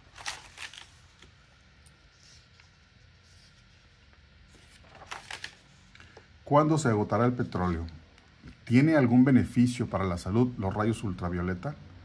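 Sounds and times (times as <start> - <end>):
magazine pages rustling: 0.0 - 6.3
low steady hum: 0.0 - 12.0.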